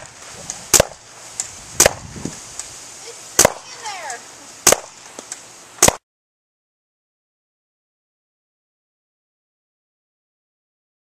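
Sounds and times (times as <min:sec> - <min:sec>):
paintball shotgun shots: 0:00.7 - 0:01.0, 0:01.8 - 0:02.1, 0:03.4 - 0:03.7, 0:04.6 - 0:05.0, 0:05.8 - 0:06.0.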